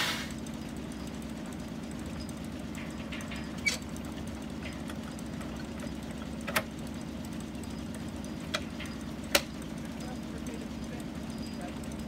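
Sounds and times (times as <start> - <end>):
engine running steadily: 0.0 - 12.0
sharp metal clanks of levers: 2.2 - 3.9.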